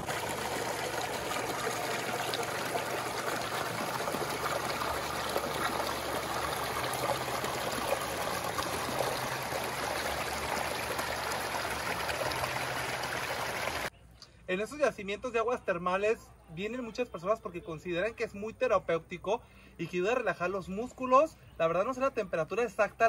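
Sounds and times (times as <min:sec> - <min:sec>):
river water trickling over rocks: 0:00.0 - 0:13.9.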